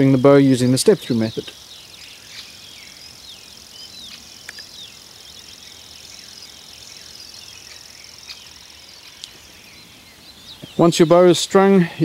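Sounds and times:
birds chirping: 0.0s - 12.0s
insect drone: 0.0s - 12.0s
faint clicks: 4.4s - 4.7s, 9.1s - 9.4s.

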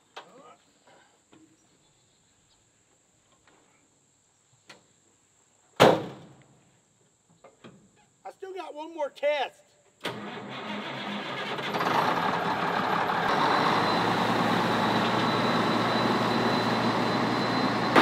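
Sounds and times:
truck door slamming shut: 5.8s - 6.3s.

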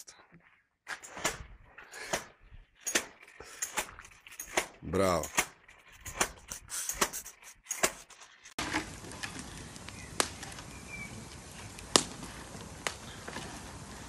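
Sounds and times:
outdoor background hiss: 8.6s - 14.0s.

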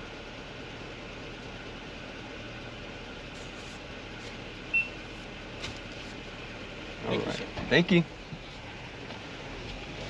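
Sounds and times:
vehicle idling hum: 0.0s - 10.0s
short high beep: 4.7s - 5.0s.

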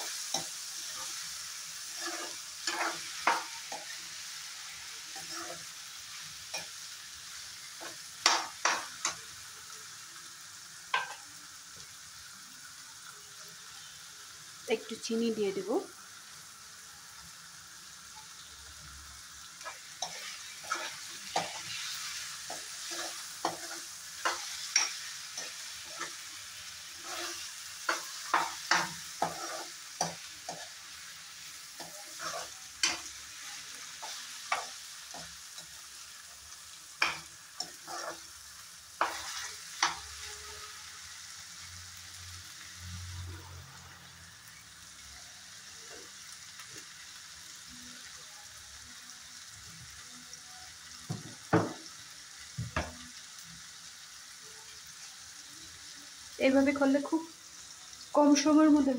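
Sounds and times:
vegetables sizzling in oil: 0.0s - 58.9s
spoon scraping and tapping pan: 1.9s - 3.9s, 7.8s - 9.2s, 10.9s - 11.2s, 22.5s - 26.2s, 27.0s - 30.7s, 31.8s - 33.1s, 39.0s - 40.1s.

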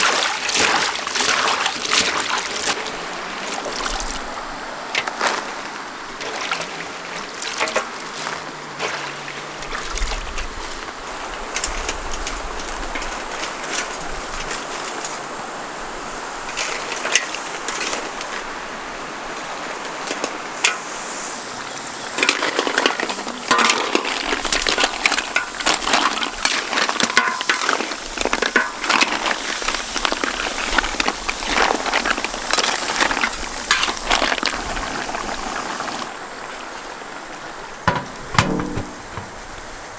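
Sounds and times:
water sloshing in metal basin: 7.4s - 9.3s, 22.2s - 29.2s, 37.9s - 39.6s.

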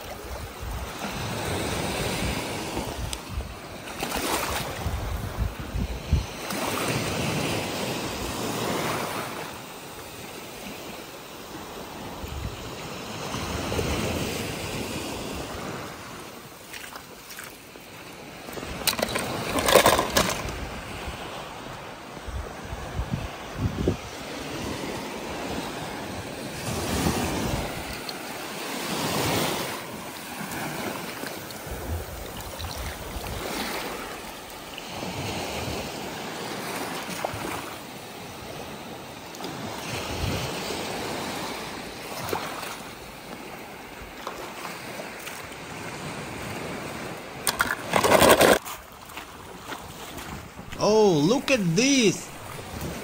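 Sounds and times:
water washing in waves: 0.0s - 53.0s
wind noise: 0.3s - 6.4s, 22.2s - 24.8s, 31.6s - 34.1s.

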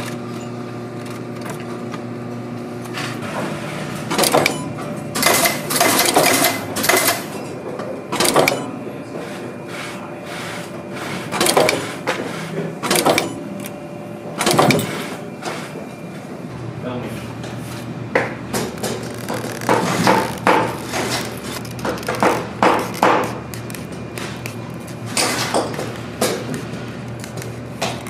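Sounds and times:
steady motor hum: 0.0s - 28.0s
press clacking: 4.1s - 7.4s, 8.2s - 8.8s, 12.8s - 13.7s.

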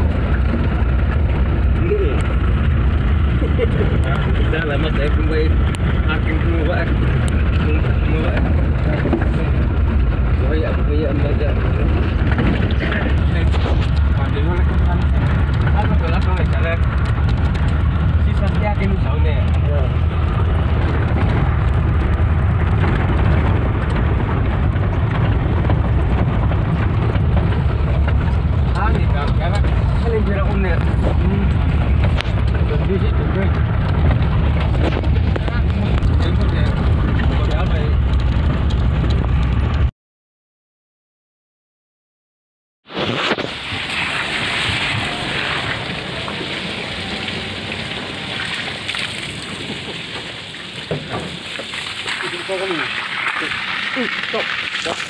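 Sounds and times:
tyres on rocky track: 0.0s - 39.9s, 42.8s - 55.0s
vehicle engine under load: 0.0s - 39.9s, 42.8s - 55.0s
water running from hose: 43.5s - 55.0s.

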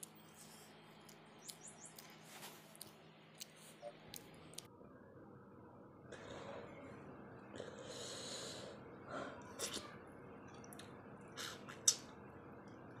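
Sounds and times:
chewing and lip smacking: 1.0s - 4.7s
person breathing: 7.6s - 9.4s.

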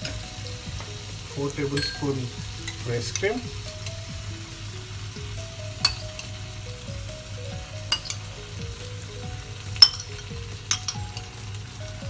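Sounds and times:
chicken sizzling in a frying pan: 0.0s - 12.0s
spoon clinking against bowl: 1.7s - 3.5s, 5.8s - 6.3s, 7.9s - 8.3s, 9.8s - 11.3s.

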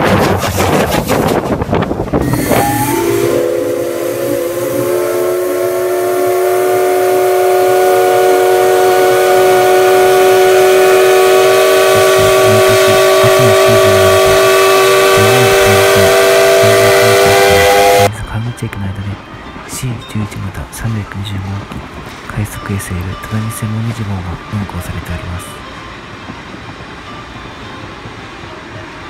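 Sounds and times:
steam hissing: 2.1s - 18.1s
steam locomotive chime whistle: 2.2s - 21.5s, 22.2s - 29.0s.

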